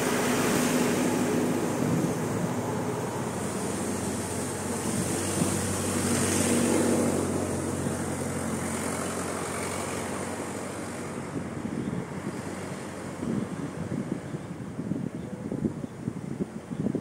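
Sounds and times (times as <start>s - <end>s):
vehicle passing on road: 0.0s - 16.7s
wind noise on microphone: 0.0s - 17.0s.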